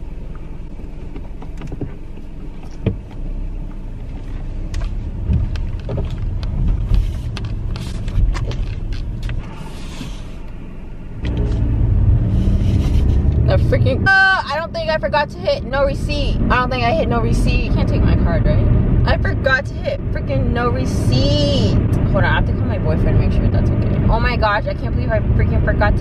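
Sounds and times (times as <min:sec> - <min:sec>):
car engine: 0:00.0 - 0:26.0
tyre rumble: 0:04.0 - 0:10.3.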